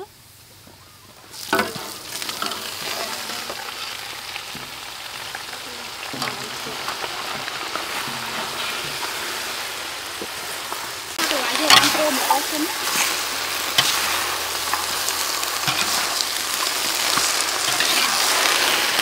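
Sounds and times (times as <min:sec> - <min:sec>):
vegetables sizzling in wok: 0:00.0 - 0:19.0
metal spatula stirring: 0:01.4 - 0:03.7, 0:11.3 - 0:16.2, 0:17.0 - 0:18.8.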